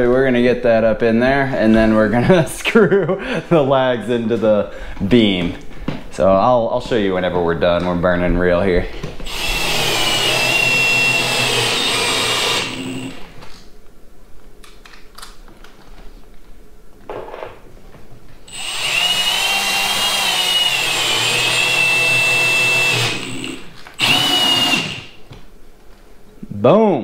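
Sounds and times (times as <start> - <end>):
cordless drill motor whine: 9.3 - 13.4, 18.5 - 25.2.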